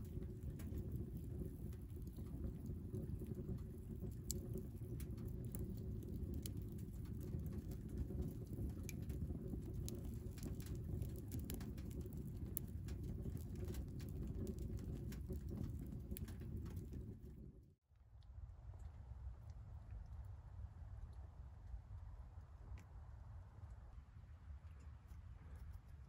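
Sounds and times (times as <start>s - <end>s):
fire rumbling in stove: 0.0s - 17.8s
wood crackling and popping: 0.0s - 17.8s.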